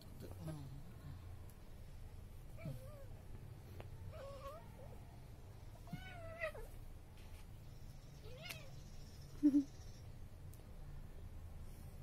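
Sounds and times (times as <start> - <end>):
cat meowing: 5.8 - 6.7.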